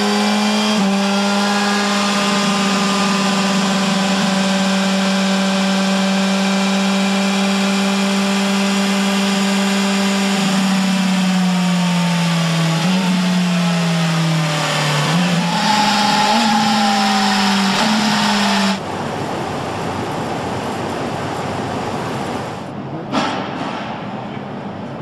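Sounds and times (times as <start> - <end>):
motorcycle engine running: 0.0 - 18.8
steady factory hum: 18.8 - 25.0.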